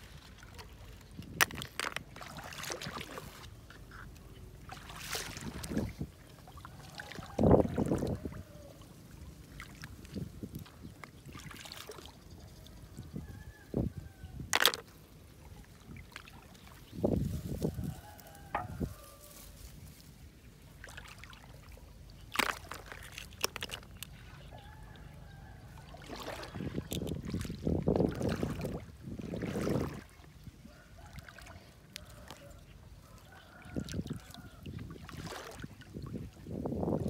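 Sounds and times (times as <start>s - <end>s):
hands splashing in shallow water: 0.0s - 3.9s, 4.7s - 8.4s, 20.8s - 24.5s, 25.8s - 30.2s, 33.8s - 36.3s
snails clicking into plastic bucket: 14.5s - 14.9s, 22.4s - 24.2s.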